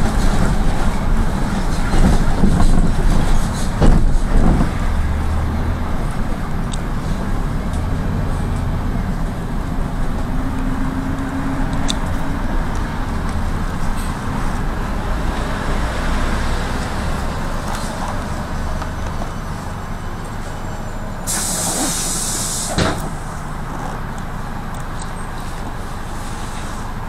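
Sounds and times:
vehicle engine and road rumble: 0:00.0 - 0:27.0
air hiss: 0:21.3 - 0:23.1.

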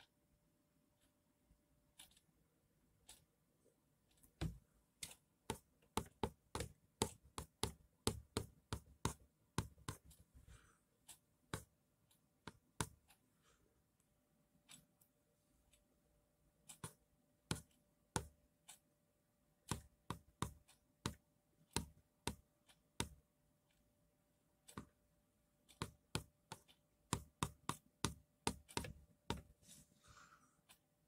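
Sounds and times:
sharp short clicks and taps: 0:04.1 - 0:10.3, 0:16.7 - 0:18.9, 0:25.6 - 0:29.6.

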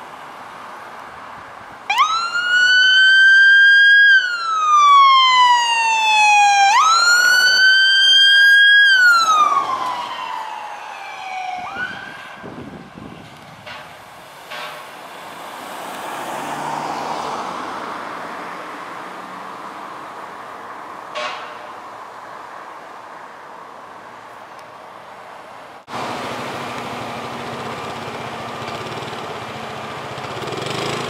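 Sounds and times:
fire engine siren wailing: 0:01.9 - 0:13.2.

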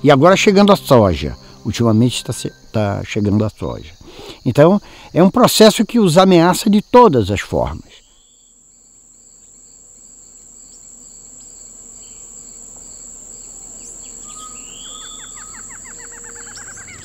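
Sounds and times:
high insect drone: 0:00.0 - 0:17.0
bird calls: 0:13.8 - 0:17.0.

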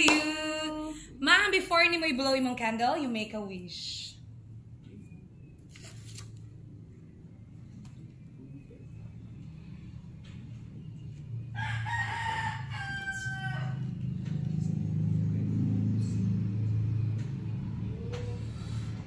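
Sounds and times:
rooster crowing: 0:11.5 - 0:14.3.

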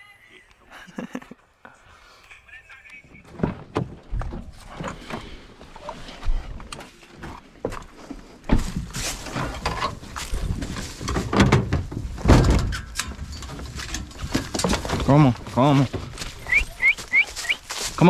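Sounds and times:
knocks and clunks on metal box: 0:11.0 - 0:15.1.

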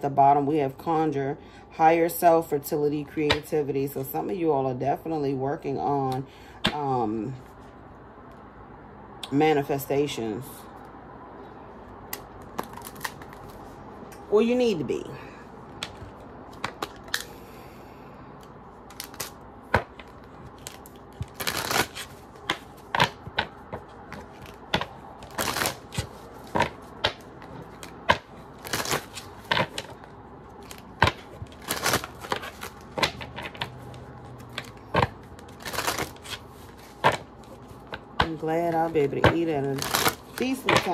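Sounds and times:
cards being shuffled: 0:12.1 - 0:13.7, 0:15.7 - 0:17.3, 0:18.4 - 0:40.9.

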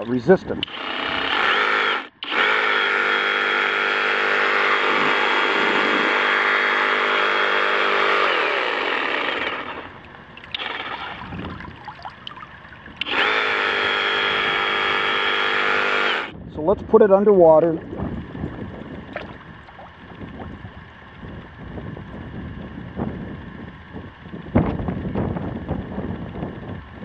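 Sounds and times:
saw churning in water: 0:00.6 - 0:16.3, 0:17.6 - 0:20.8
reciprocating saw motor whine: 0:00.6 - 0:16.4.

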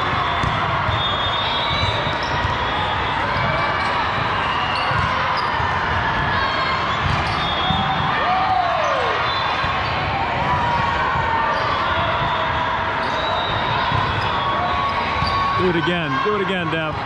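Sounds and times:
balls thudding on court: 0:00.4 - 0:00.8.

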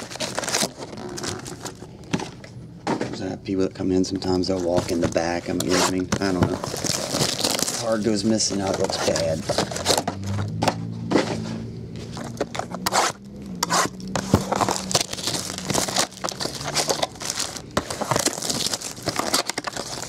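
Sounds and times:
foil wrappers crinkling: 0:00.0 - 0:02.0, 0:04.1 - 0:10.1, 0:12.0 - 0:20.0.

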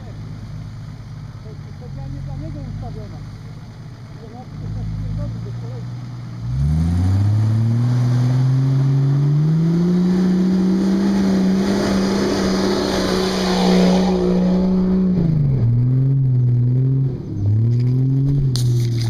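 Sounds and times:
truck engine revving: 0:04.0 - 0:19.0.

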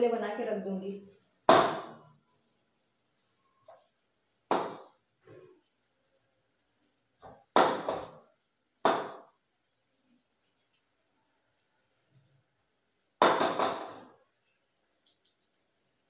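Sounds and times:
knocks on steel plate: 0:08.9 - 0:09.2, 0:13.2 - 0:14.0.

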